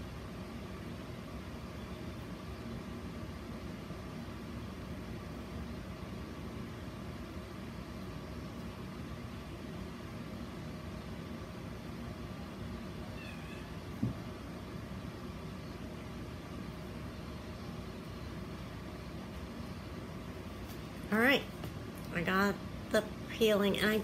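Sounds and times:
low room hum: 0.0 - 24.0
cat meowing: 13.1 - 13.8.

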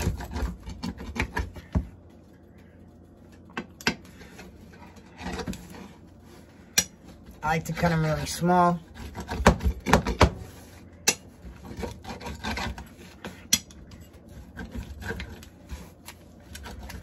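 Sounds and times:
knife sawing crisp tortilla: 0.0 - 1.7, 8.8 - 10.8, 11.5 - 17.0.

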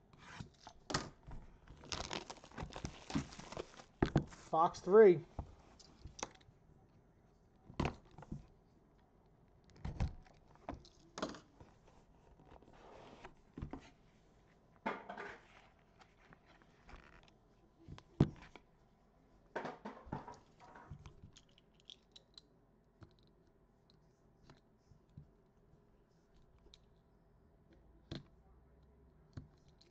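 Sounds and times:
cardboard scrapes and rustles: 11.8 - 14.1.

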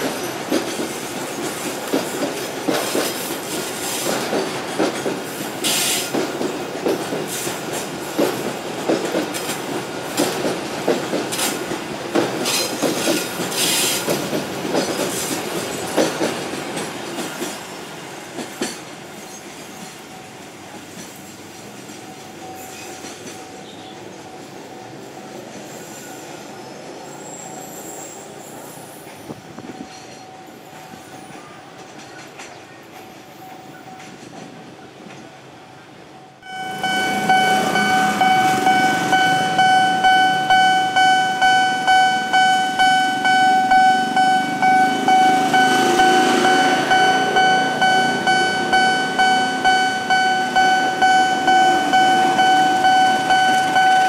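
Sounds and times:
level crossing alarm ringing: 36.4 - 54.0.

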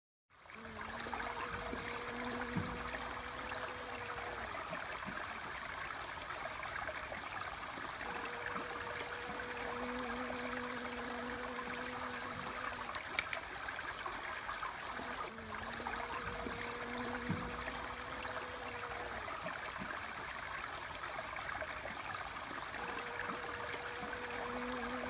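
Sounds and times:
water trickling: 0.4 - 25.0
bee buzzing: 0.5 - 5.2, 7.9 - 13.4, 14.8 - 19.8, 22.7 - 25.0.

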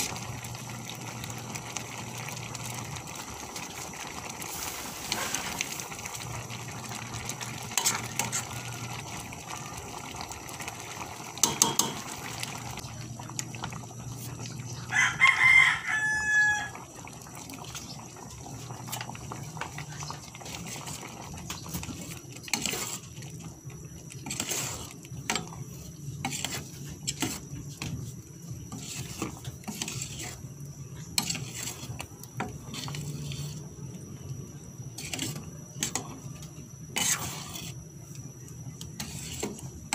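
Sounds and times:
ladle scraping a metal pot: 20.0 - 23.1, 24.2 - 25.5, 26.2 - 27.4, 28.7 - 30.4, 31.2 - 32.0, 35.0 - 36.0, 36.9 - 37.8, 39.0 - 39.6.

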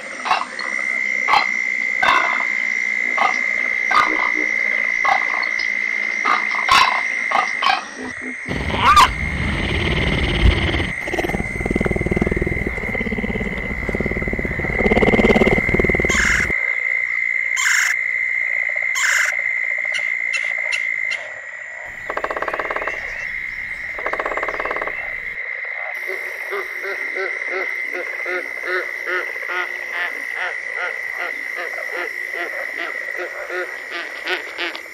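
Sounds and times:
frog chorus trilling: 0.0 - 34.9
low rumbling: 8.5 - 16.5
woodpecker calls: 8.5 - 16.5, 21.9 - 25.4
woodpecker drumming: 8.5 - 16.5, 21.9 - 25.4
woodpecker tapping: 8.5 - 16.5.

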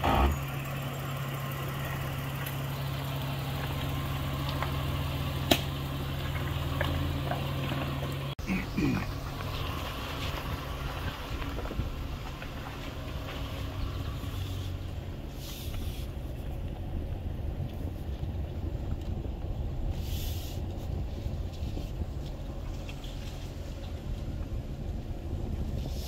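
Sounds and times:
truck engine low rumble: 0.0 - 26.0
tyre and chassis noise: 0.0 - 26.0.

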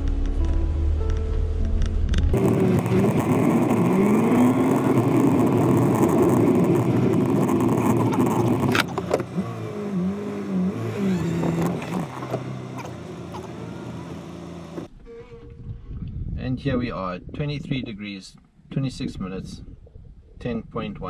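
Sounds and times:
car engine and road noise: 0.0 - 16.3.

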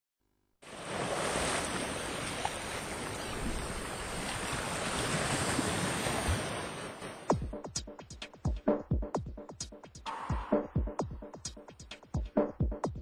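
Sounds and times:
sea surf rushing: 0.6 - 7.4, 10.1 - 10.9
wind: 0.6 - 7.4.

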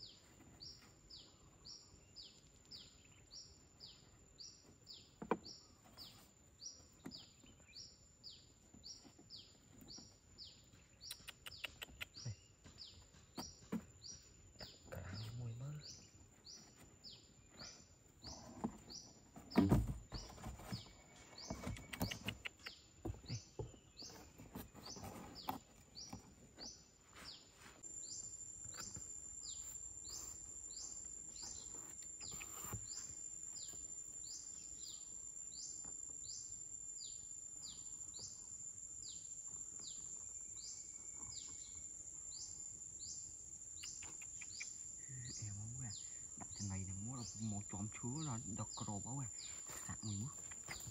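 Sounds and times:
bird chirping: 0.0 - 50.9
cardboard rustling and knocking: 18.4 - 21.8.

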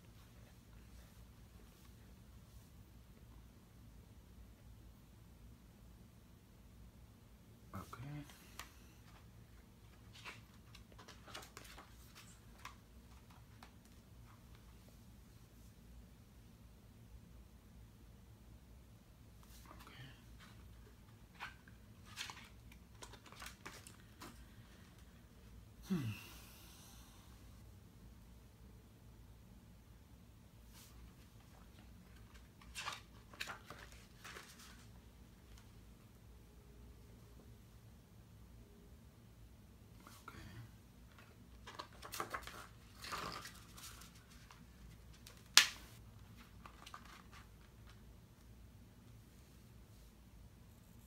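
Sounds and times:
booklet pages turning: 9.9 - 14.6, 20.4 - 24.7, 30.7 - 35.7, 41.1 - 48.0
sharp paper snap: 45.3 - 46.0.

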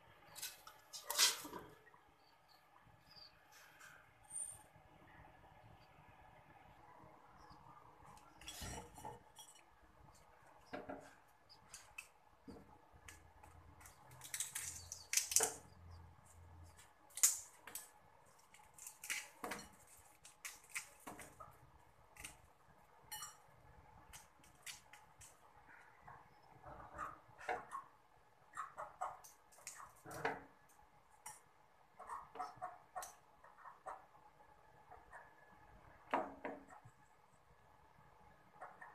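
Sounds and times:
utensils clinking on steel: 23.1 - 23.4.

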